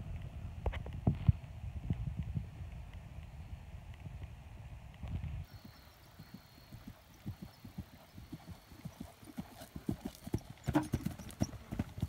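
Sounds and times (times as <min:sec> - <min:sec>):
wind rumble on microphone: 0:00.0 - 0:06.0
horse hooves on grass: 0:03.9 - 0:12.0.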